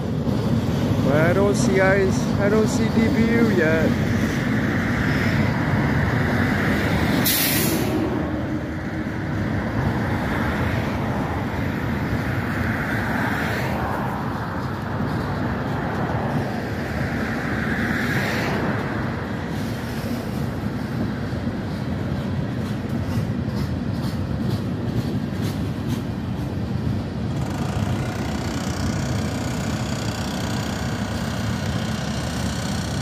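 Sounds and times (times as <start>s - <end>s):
freight train rumbling past: 0.0s - 33.0s
sharp hiss: 7.1s - 8.0s.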